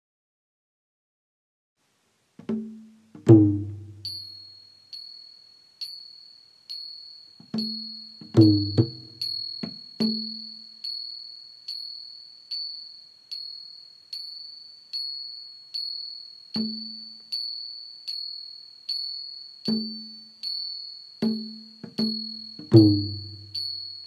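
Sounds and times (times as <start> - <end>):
low ringing mallet notes: 2.5 - 5.2, 7.5 - 11.0, 16.6 - 17.5, 19.7 - 24.0
chime-like instrumental music: 2.6 - 24.0.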